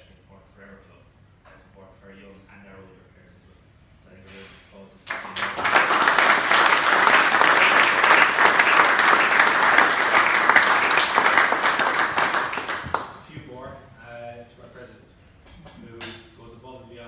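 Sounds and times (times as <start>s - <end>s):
audience applauding: 5.1s - 13.2s.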